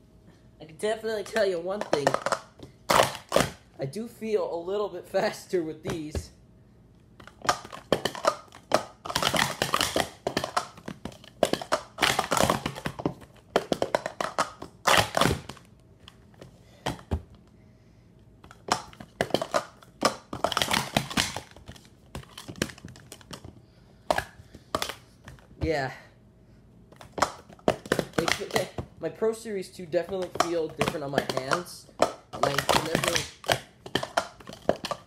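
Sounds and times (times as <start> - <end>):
plastic cups clattering on a mat: 1.2 - 3.6, 7.2 - 15.6, 18.4 - 25.8, 27.0 - 28.8, 30.1 - 35.0.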